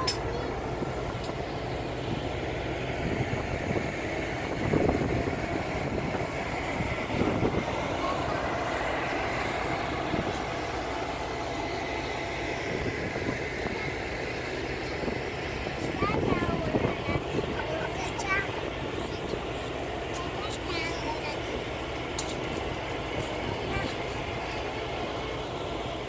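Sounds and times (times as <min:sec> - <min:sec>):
wind buffeting microphone: 0:00.0 - 0:11.4, 0:12.5 - 0:19.5.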